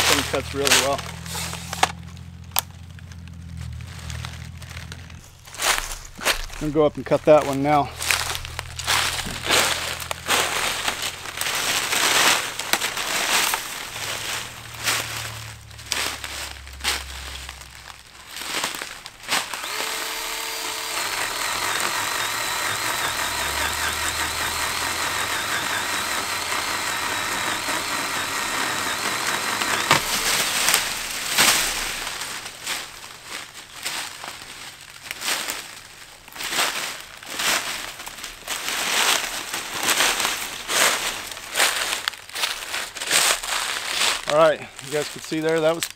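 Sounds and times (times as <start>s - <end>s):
pole saw motor whining: 0.0s - 32.4s
footsteps through dry leaves: 0.1s - 23.6s, 30.0s - 45.9s.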